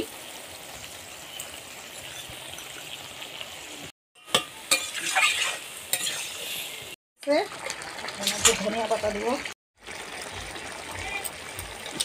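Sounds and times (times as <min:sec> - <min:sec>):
food sizzling in oil: 0:00.0 - 0:12.0
metal spatula scraping pan: 0:04.2 - 0:07.0.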